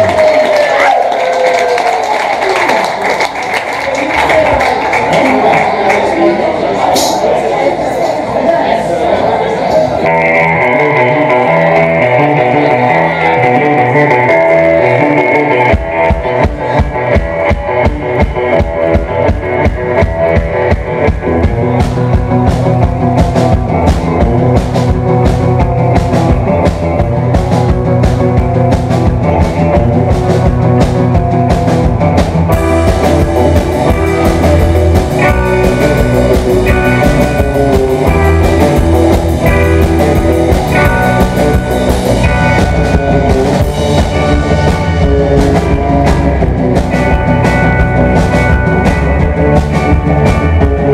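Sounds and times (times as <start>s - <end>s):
drum kit beat: 7.0s - 7.2s, 14.2s - 50.9s
electric guitars: 9.5s - 50.9s.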